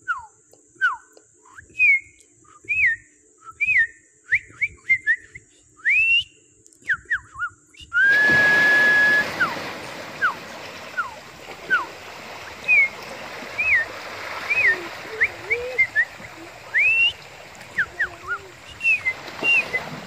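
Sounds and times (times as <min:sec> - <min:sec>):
whistled notes: 0:00.0 - 0:09.6, 0:12.6 - 0:13.0, 0:13.6 - 0:13.9, 0:14.5 - 0:20.0
water surging between rocks: 0:08.0 - 0:20.0.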